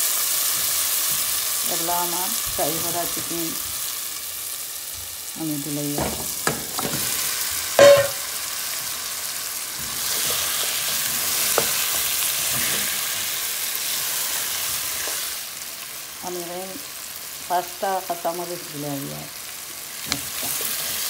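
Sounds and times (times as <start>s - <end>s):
chicken sizzling in oil: 0.0s - 21.0s
metal knocking on pot: 6.0s - 7.1s, 7.8s - 8.3s.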